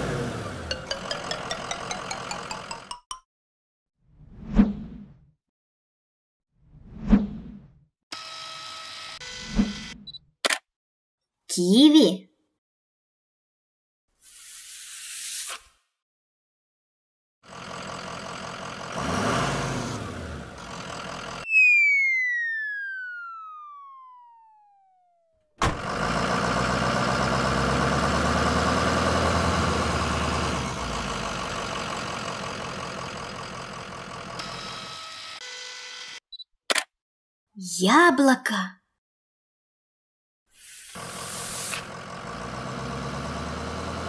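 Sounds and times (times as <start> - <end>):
cartoon truck engine: 0.0 - 3.2, 17.4 - 35.4, 40.9 - 44.0
descending whistle: 21.4 - 25.1.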